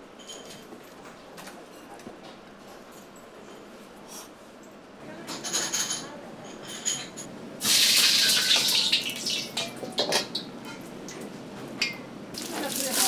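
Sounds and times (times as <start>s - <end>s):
water gushing from faucet into wok: 7.6s - 9.6s, 12.4s - 13.0s.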